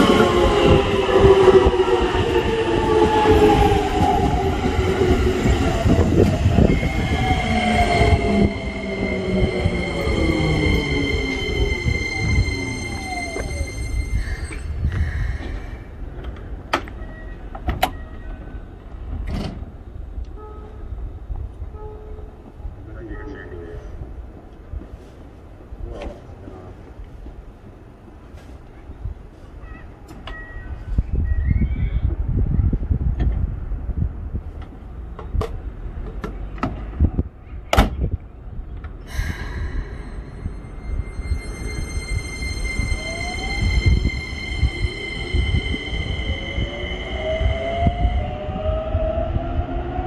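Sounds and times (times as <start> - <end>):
electric train whine: 0.0 - 17.3, 39.1 - 50.0
low train rumble: 0.0 - 50.0
train motor whine: 5.9 - 14.7.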